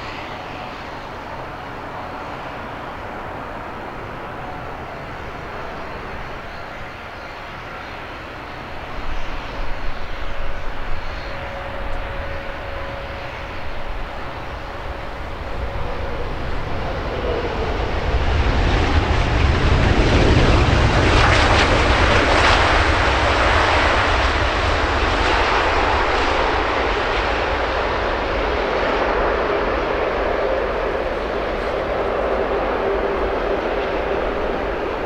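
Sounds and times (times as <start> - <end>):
jet airliner passing: 0.0 - 35.0.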